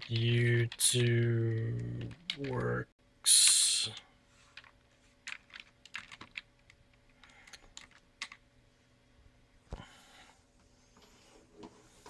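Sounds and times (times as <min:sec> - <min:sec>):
computer keyboard keystrokes: 0:04.6 - 0:08.4.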